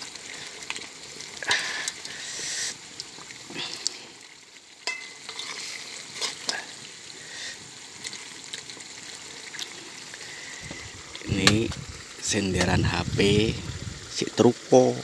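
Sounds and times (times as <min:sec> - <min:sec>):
meat sizzling in a wok: 0:00.0 - 0:15.0
metal spoon scraping a pan: 0:04.9 - 0:06.6.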